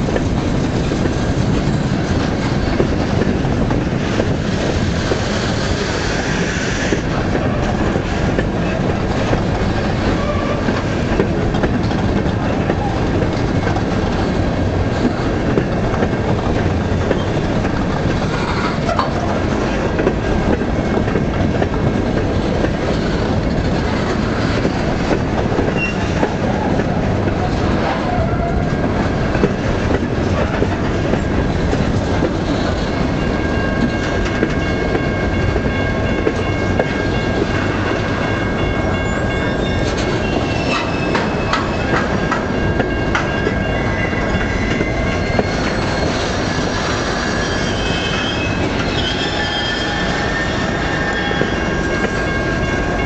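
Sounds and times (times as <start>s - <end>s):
steel wheels rumbling on rail: 0.0s - 53.0s
wheels clicking over rail joints: 6.9s - 39.1s, 39.7s - 47.0s.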